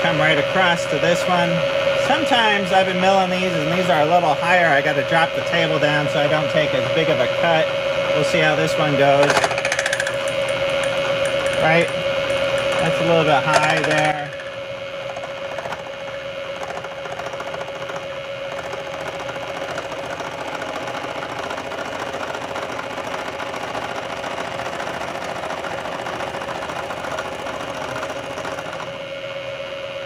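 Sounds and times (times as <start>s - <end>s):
milling machine whine: 0.0s - 30.0s
cutter ticking: 9.1s - 29.0s.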